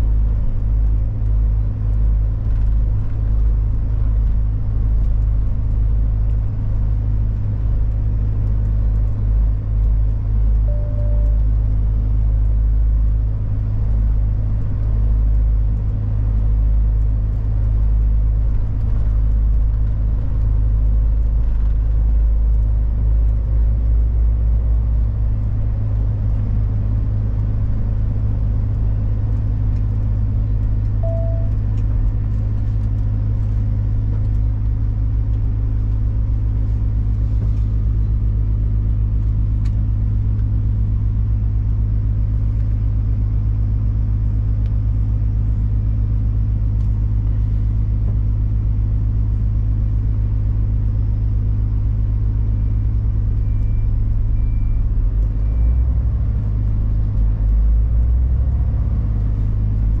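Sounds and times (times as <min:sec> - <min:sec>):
truck diesel engine droning: 0:00.0 - 1:00.0
short high beeps: 0:10.7 - 0:11.4, 0:31.0 - 0:31.7.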